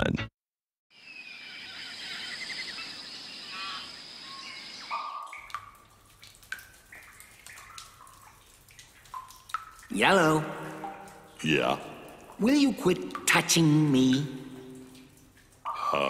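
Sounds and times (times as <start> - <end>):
birds chirping: 1.0 - 5.6
water dripping in a cave: 4.3 - 16.0.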